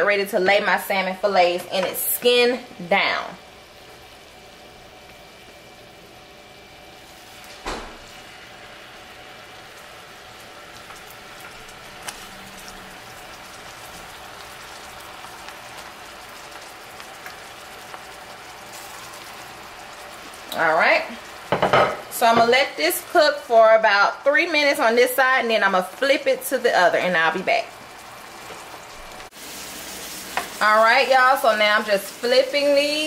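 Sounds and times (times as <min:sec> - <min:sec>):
glaze bubbling and sizzling: 0:00.0 - 0:33.0.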